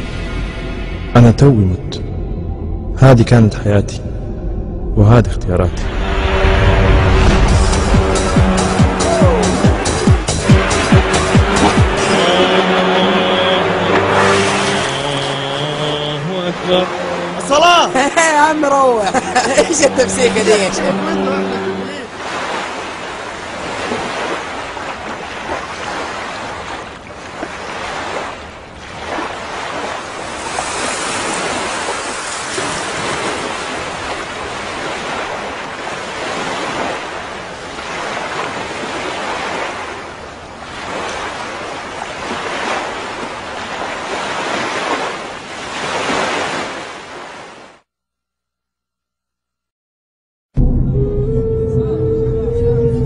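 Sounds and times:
sea surf on beach: 5.8s - 47.9s.

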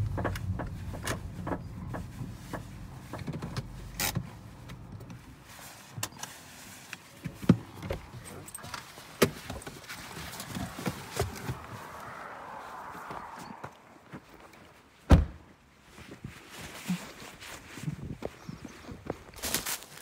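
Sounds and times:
car engine rumble: 0.0s - 15.6s.

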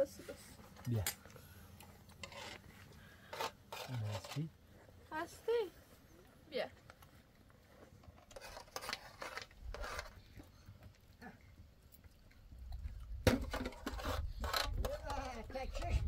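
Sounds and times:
spoons scraping a metal platter: 2.1s - 4.5s, 8.1s - 10.4s, 13.4s - 16.0s.

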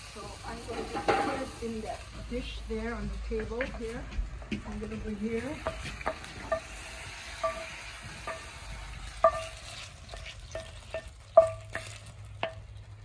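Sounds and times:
food sizzling: 0.0s - 13.0s
metal utensil knocking frying pan: 0.6s - 1.6s, 3.3s - 6.8s, 7.4s - 12.8s.

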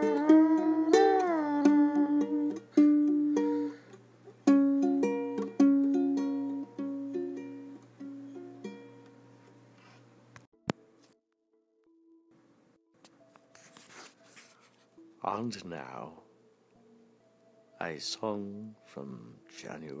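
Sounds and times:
plucked string melody: 0.0s - 9.2s.

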